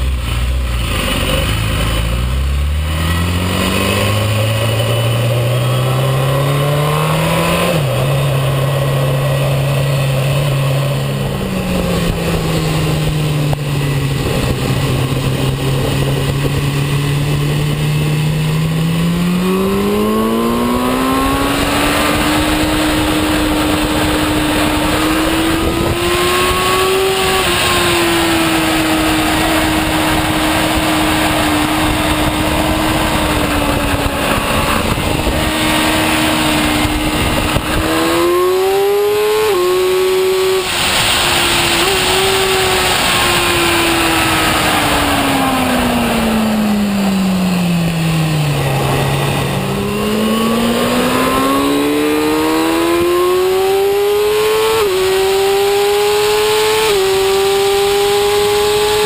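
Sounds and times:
motorcycle engine accelerating: 0.0s - 59.0s
wind rushing: 11.1s - 54.2s.

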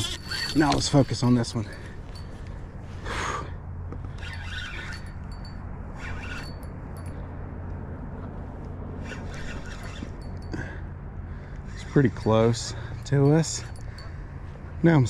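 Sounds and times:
fishing reel being wound: 0.0s - 1.3s, 4.1s - 7.2s, 9.0s - 10.7s
steady low rumble: 0.0s - 15.0s.

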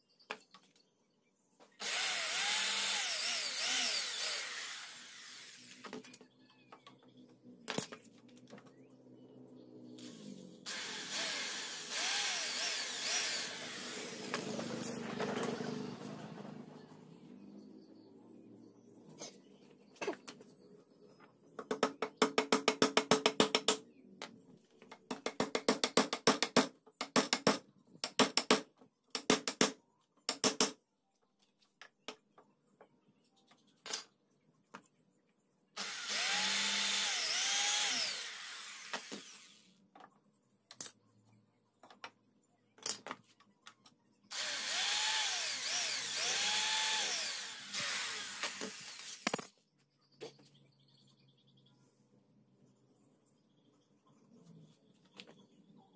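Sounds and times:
electric drill motor: 1.8s - 5.9s, 10.0s - 16.2s, 35.8s - 39.7s, 44.3s - 49.3s.

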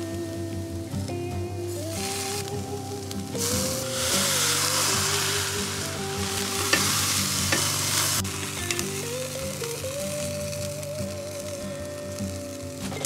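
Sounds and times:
background music: 0.0s - 13.0s
mushrooms sizzling on grill: 0.0s - 13.0s.

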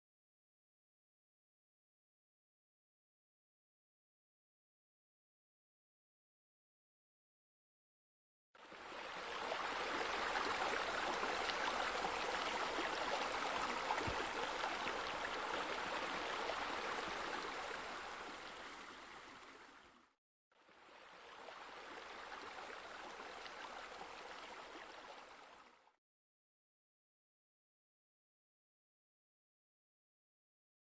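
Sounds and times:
running water rushing: 8.6s - 20.0s, 20.7s - 25.6s.

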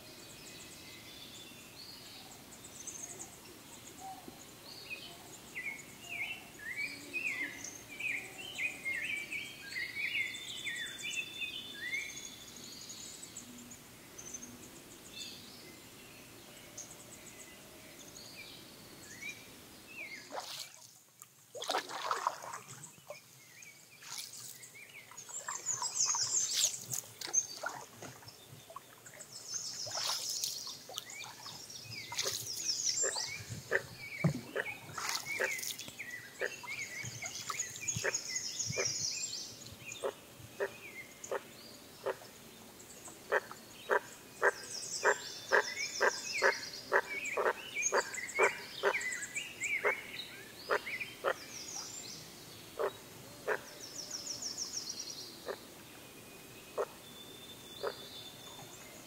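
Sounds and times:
songbirds trilling: 21.6s - 59.0s
frogs croaking: 43.3s - 50.1s, 50.7s - 51.5s, 52.8s - 53.7s.

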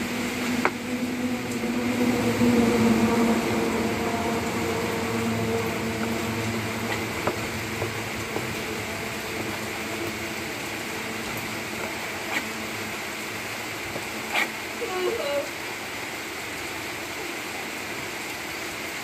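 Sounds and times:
machine hum: 0.0s - 14.9s.

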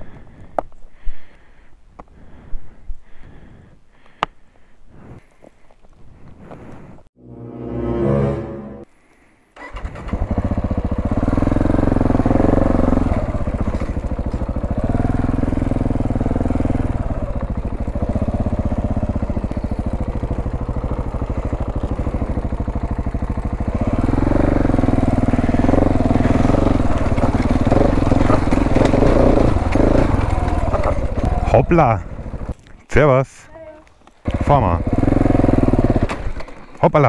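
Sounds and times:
motorcycle engine revving: 9.6s - 32.6s, 34.2s - 36.7s.

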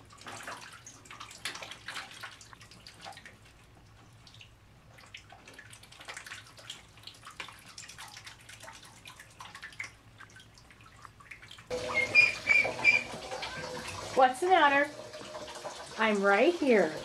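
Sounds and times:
ducklings splashing in water: 0.0s - 15.9s
ducklings calling: 11.8s - 13.2s.

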